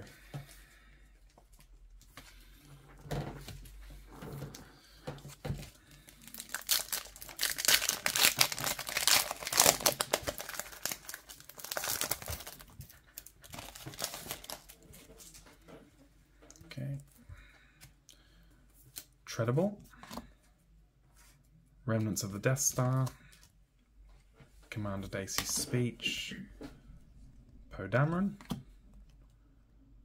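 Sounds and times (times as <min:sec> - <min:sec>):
foil wrapper tearing and crinkling: 0:06.3 - 0:14.8.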